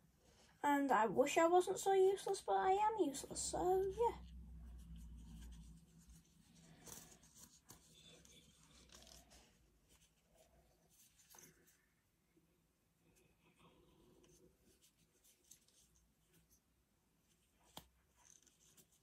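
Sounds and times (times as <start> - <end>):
faint rubbing: 3.4 - 11.9.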